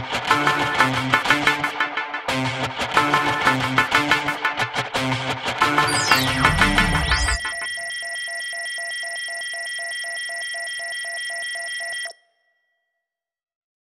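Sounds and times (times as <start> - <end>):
steady high synthesizer tones: 5.6 - 8.3
pulsing electronic beep: 5.7 - 12.2.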